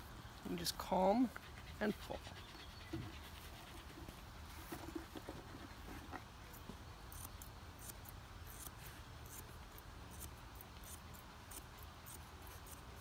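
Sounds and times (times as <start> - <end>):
shears snipping fur: 3.0 - 13.0.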